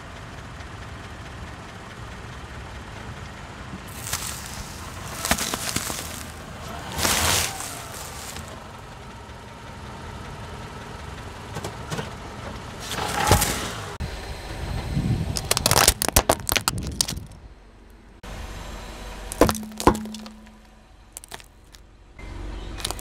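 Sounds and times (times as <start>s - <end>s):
car engine running: 0.0s - 23.0s
sharp crack: 3.9s - 8.6s, 15.4s - 17.4s, 19.3s - 21.8s, 22.8s - 23.0s
tyre crunching something brittle: 3.9s - 8.6s, 12.8s - 13.7s, 15.4s - 17.4s, 19.3s - 21.8s, 22.8s - 23.0s.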